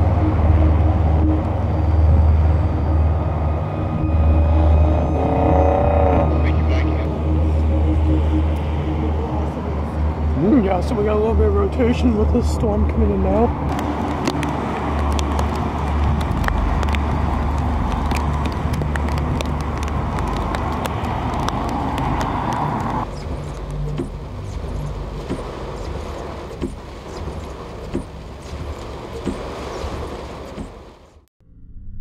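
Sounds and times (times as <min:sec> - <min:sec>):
low thunder rumble: 0:00.0 - 0:30.2
wind buffeting microphone: 0:00.0 - 0:30.9
road traffic passing: 0:00.0 - 0:31.2.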